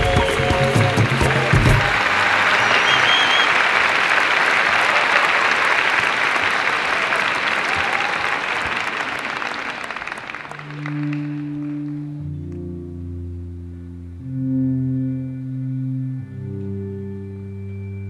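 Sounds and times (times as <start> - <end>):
audience applauding: 0.0 - 12.6
low sustained music notes: 10.5 - 18.0.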